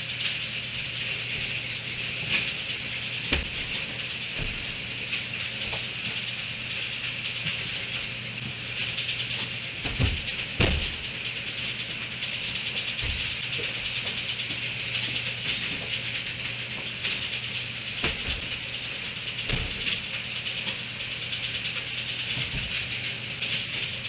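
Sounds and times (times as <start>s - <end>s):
dull thumps: 3.3s - 5.0s, 9.8s - 11.1s.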